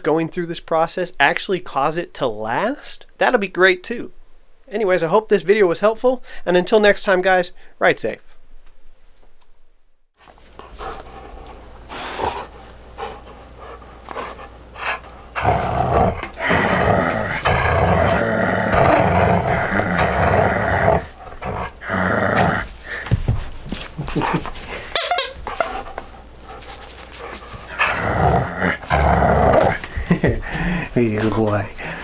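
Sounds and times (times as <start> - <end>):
dog growling in play: 10.7 - 23.0, 25.6 - 30.9.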